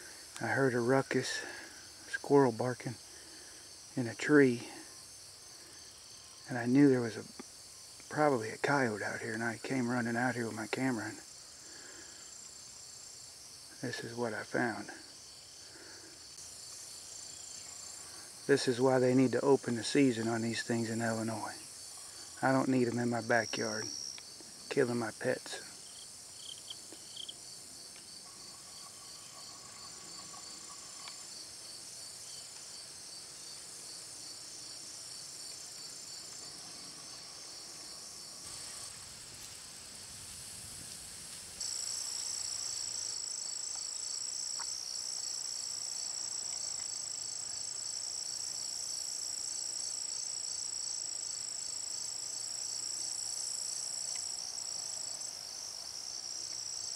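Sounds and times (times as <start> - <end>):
insects trilling: 0.0 - 56.9.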